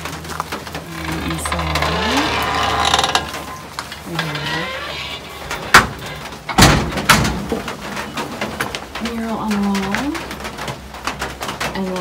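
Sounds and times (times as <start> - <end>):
rustling: 0.0 - 12.0
knocks and clatters on wood: 5.5 - 12.0.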